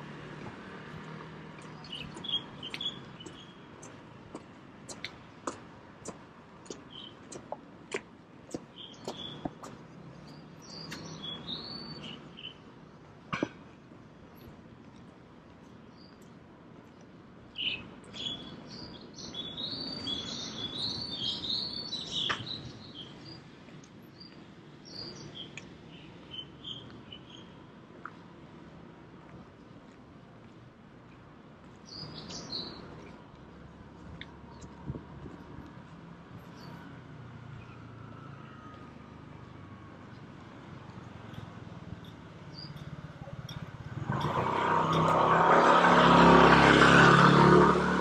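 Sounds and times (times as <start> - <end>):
small birds chirping: 1.1 - 12.7, 15.7 - 28.2, 31.8 - 33.4, 41.0 - 44.0.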